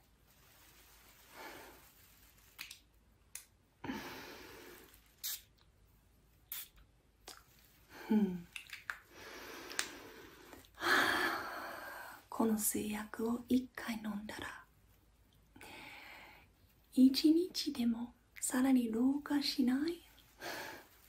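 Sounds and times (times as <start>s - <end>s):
woman's breathy sighs: 3.8s - 4.9s, 7.9s - 8.5s, 9.2s - 12.3s.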